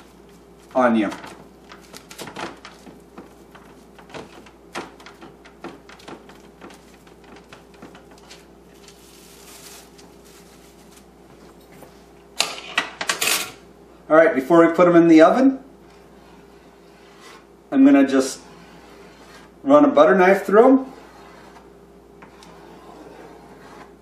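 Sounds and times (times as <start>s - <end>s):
plastic wrap crinkling: 0.1s - 11.5s.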